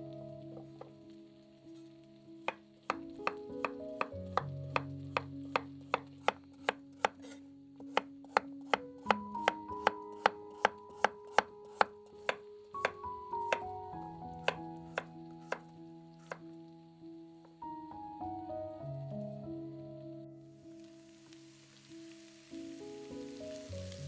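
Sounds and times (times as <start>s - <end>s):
soft background music: 0.0s - 24.0s
knife chopping on wooden board: 2.5s - 13.6s.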